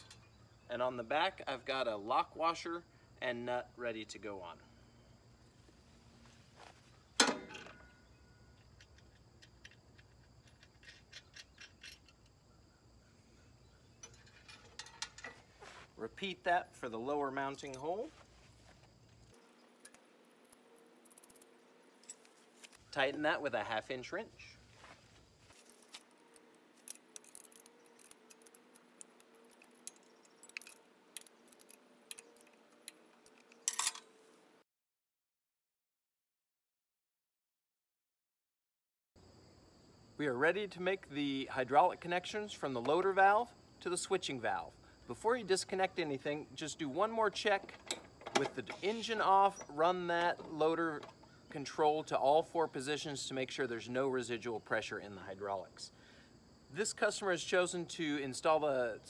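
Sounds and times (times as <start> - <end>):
metal clatter: 7.2 - 7.9, 14.0 - 15.5, 26.8 - 34.1
sharp metallic clack: 7.2 - 7.9
small metal clicks: 8.6 - 12.4, 19.2 - 22.8, 25.6 - 34.1
wrench clinking on metal: 8.8 - 12.3, 14.0 - 15.4, 26.8 - 34.1.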